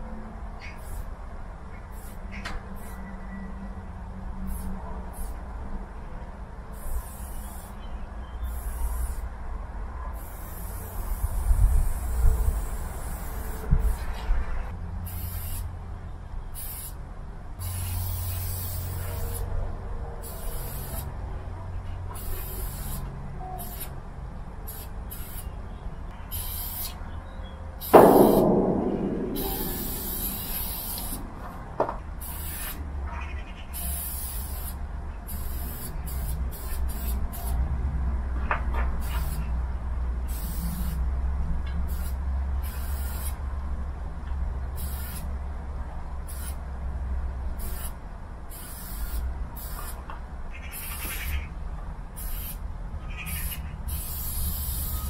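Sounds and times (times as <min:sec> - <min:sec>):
spray paint can hissing: 0:00.7 - 0:01.1, 0:01.9 - 0:02.2, 0:04.5 - 0:05.4, 0:06.7 - 0:07.8, 0:08.4 - 0:09.2, 0:10.2 - 0:14.1, 0:15.0 - 0:15.7, 0:16.6 - 0:17.0, 0:17.6 - 0:19.5, 0:20.2 - 0:21.1, 0:22.2 - 0:23.9, 0:24.7 - 0:25.5, 0:26.3 - 0:27.0, 0:27.8 - 0:28.5, 0:29.4 - 0:31.2, 0:32.2 - 0:32.8, 0:33.7 - 0:37.6, 0:39.0 - 0:39.5, 0:40.3 - 0:41.0, 0:41.9 - 0:43.4, 0:44.8 - 0:45.3, 0:46.3 - 0:46.6, 0:47.6 - 0:50.0, 0:50.7 - 0:51.4, 0:52.2 - 0:52.6, 0:53.3 - 0:55.0
sudden loud noise: 0:27.9 - 0:31.8.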